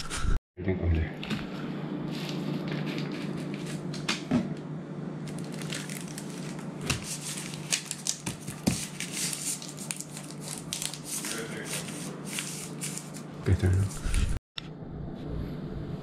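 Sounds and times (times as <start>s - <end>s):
steady low hum: 0.1s - 16.0s
paper crinkling and rustling: 2.1s - 4.1s, 5.3s - 14.3s.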